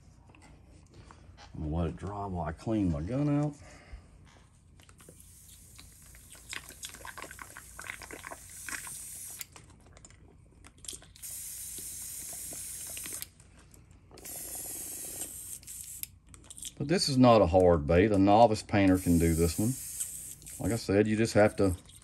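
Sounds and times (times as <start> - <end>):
airbrush spray hiss: 11.2 - 13.2, 14.2 - 16.0, 18.9 - 20.8.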